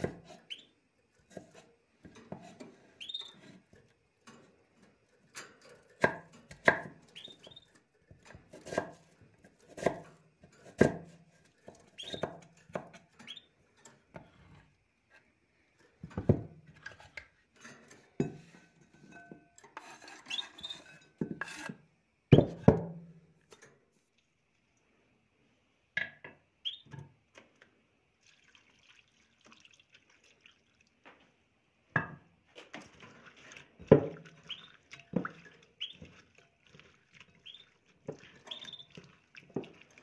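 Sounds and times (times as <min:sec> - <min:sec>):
small bird chirping: 0:00.4 - 0:00.8, 0:03.0 - 0:03.4, 0:07.1 - 0:07.7, 0:12.0 - 0:12.3, 0:13.2 - 0:13.6, 0:20.3 - 0:20.8, 0:26.6 - 0:26.9, 0:34.5 - 0:34.8, 0:35.8 - 0:36.1, 0:37.4 - 0:37.8, 0:38.5 - 0:39.0
knife chopping on wooden board: 0:08.5 - 0:09.0, 0:09.7 - 0:10.0, 0:12.0 - 0:13.0.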